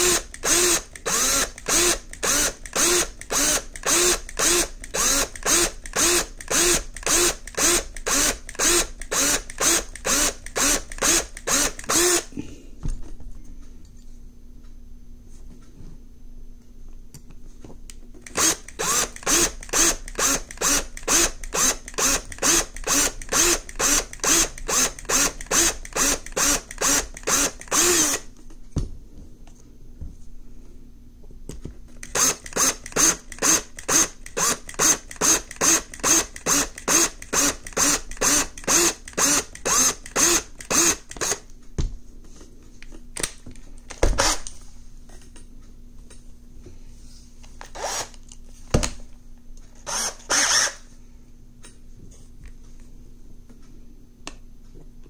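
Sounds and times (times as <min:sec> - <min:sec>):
power drill drilling metal: 0:00.0 - 0:12.3, 0:18.3 - 0:28.2, 0:32.0 - 0:41.4, 0:49.9 - 0:50.8.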